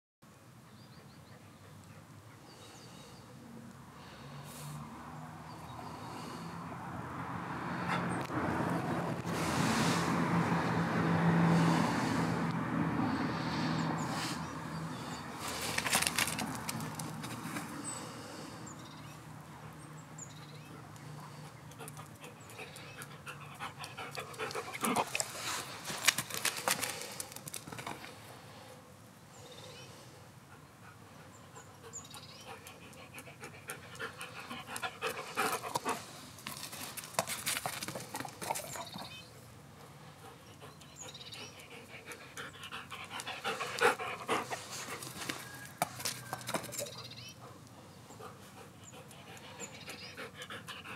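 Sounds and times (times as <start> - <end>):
paws clicking on paving stones: 15.0 - 18.0, 19.4 - 28.2, 31.6 - 50.9
dog panting hard: 20.6 - 27.0, 30.5 - 36.3, 40.1 - 45.4, 47.4 - 50.9.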